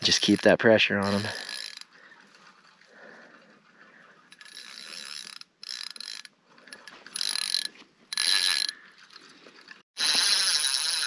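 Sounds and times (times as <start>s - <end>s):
fishing reel drag buzzing: 0.1s - 2.9s, 3.6s - 11.0s.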